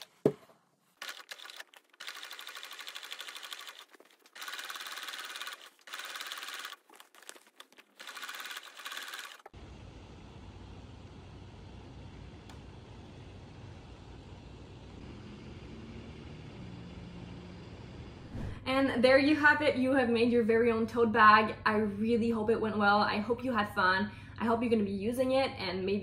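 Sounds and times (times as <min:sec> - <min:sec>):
electric sewing machine stitching: 0:01.0 - 0:07.0, 0:07.9 - 0:09.6.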